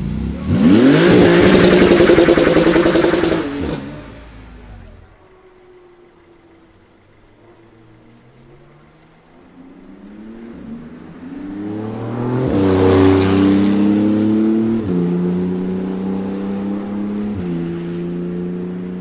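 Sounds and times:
engine upshift: 0.0 - 19.0
sports car accelerating past: 8.0 - 19.0.

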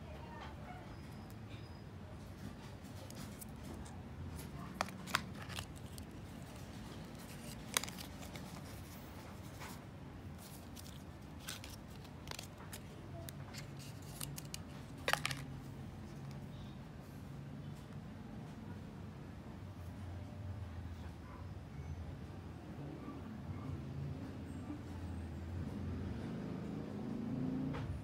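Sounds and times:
paper and cardboard rustling: 2.4 - 15.5.

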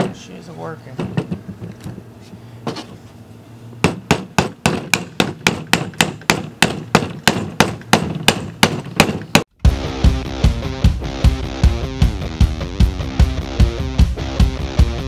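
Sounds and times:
hatchet head knocking on handle: 3.8 - 9.5.

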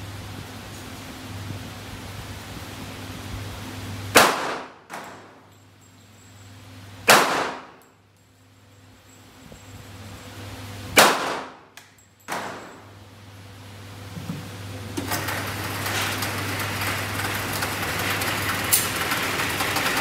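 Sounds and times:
steady running noise: 0.0 - 7.1, 7.7 - 20.0
pistol shots: 4.1 - 5.4, 7.0 - 7.8, 11.0 - 11.7.

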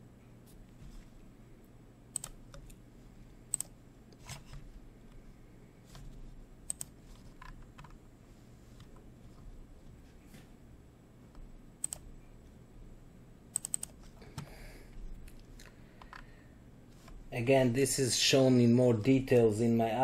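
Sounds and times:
faint low hum: 0.0 - 20.0
mouse and keyboard clicks: 6.7 - 8.0, 11.8 - 12.0.

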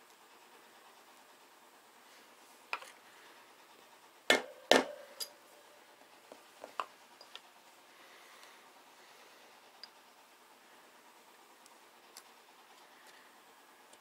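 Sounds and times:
clicks of metal parts handled: 4.8 - 5.4.

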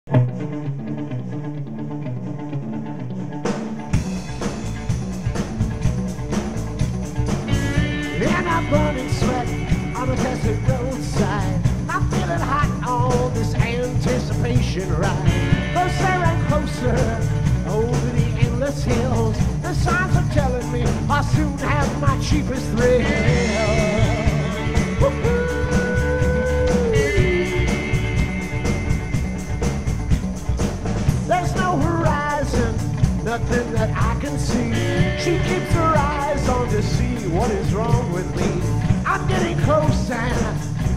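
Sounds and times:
rock band playing live: 0.1 - 40.9
man singing into a microphone: 8.2 - 27.8, 31.3 - 40.7.

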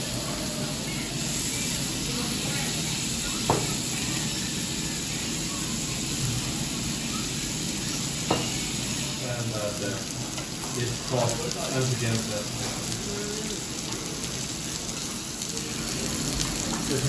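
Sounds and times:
meat sizzling on grill: 0.0 - 17.0.

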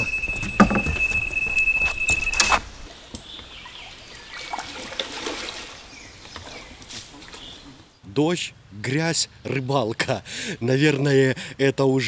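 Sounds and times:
knocks: 0.0 - 1.4
steady high beep: 0.0 - 2.7
rainwater dripping and trickling: 2.7 - 7.9.

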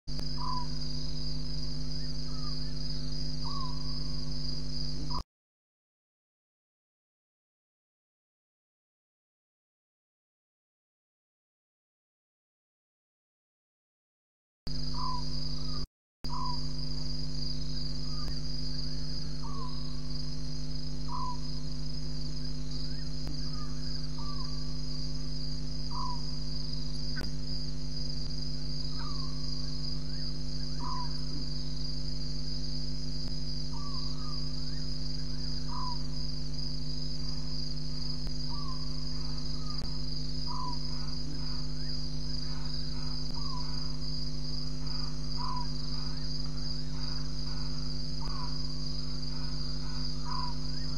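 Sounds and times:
low electrical hum: 0.1 - 5.2, 14.7 - 50.9
high insect trill: 0.2 - 5.2, 14.7 - 50.9.

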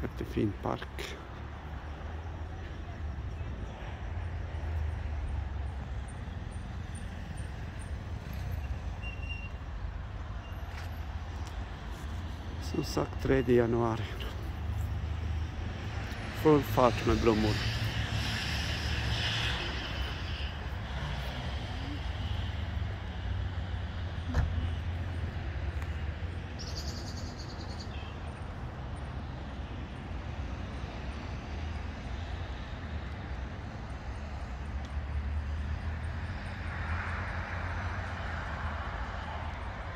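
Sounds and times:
car passing: 0.0 - 39.9
road traffic rumble: 0.0 - 39.9.

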